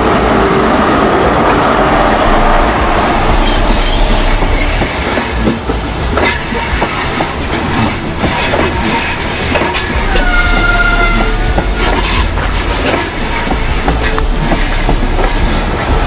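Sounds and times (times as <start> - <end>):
train wheels rumbling and clicking: 0.0 - 16.0
steady wheel squeal: 6.2 - 16.0.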